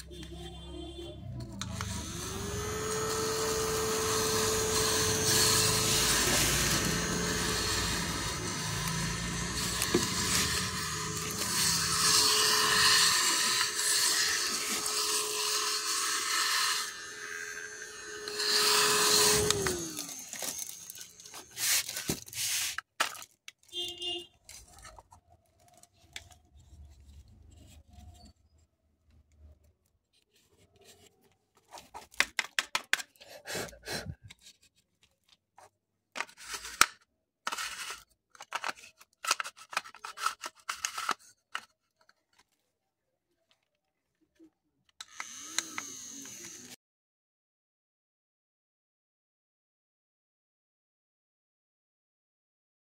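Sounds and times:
small vacuum motor whining: 1.6s - 22.0s, 45.0s - 46.8s
plastic clicks and rattles: 36.2s - 42.5s.

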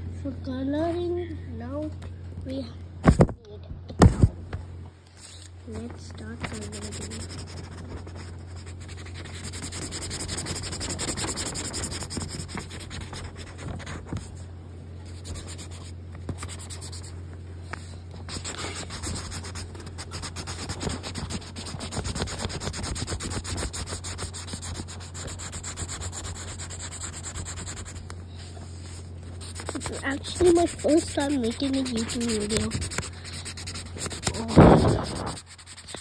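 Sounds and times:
marker scratching on paper: 6.2s - 14.4s, 15.0s - 17.1s, 17.7s - 28.1s, 28.8s - 36.0s.

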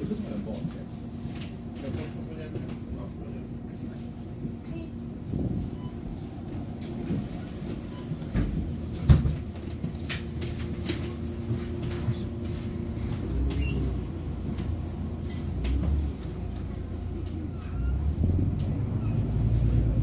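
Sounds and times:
bus engine idling: 0.0s - 20.0s
clunks and knocks in cabin: 8.2s - 12.2s.

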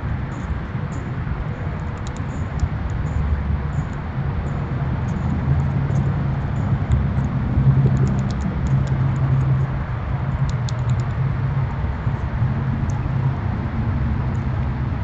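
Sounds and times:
faint high ticks: 10.4s - 11.2s.

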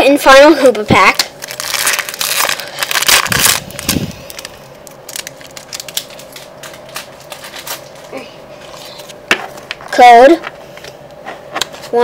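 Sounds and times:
foil wrapper crinkling: 1.0s - 8.1s.

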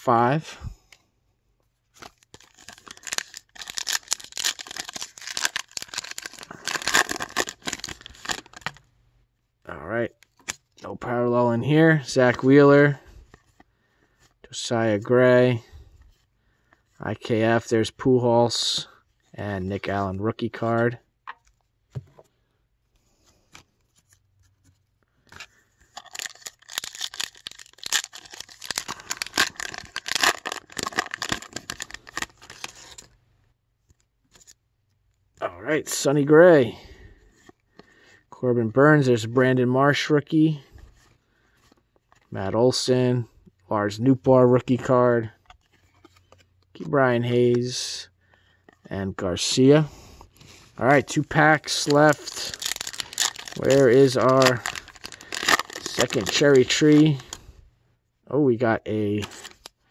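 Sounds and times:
wrapper crinkling and tearing: 2.0s - 8.8s, 25.9s - 33.1s, 51.0s - 57.4s, 59.2s - 59.8s.

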